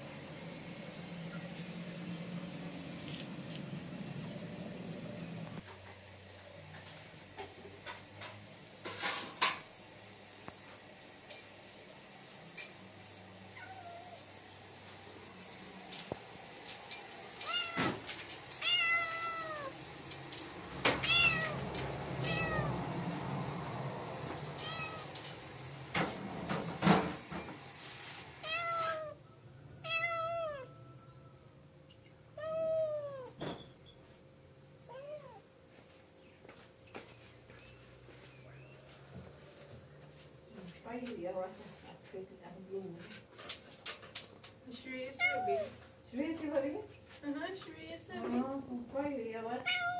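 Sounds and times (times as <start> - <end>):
kitten meowing: 13.6 - 14.2, 17.4 - 18.0, 18.6 - 19.7, 21.0 - 21.6, 22.2 - 22.7, 24.6 - 25.2, 28.4 - 29.2, 29.8 - 30.7, 32.4 - 33.4, 49.7 - 49.9.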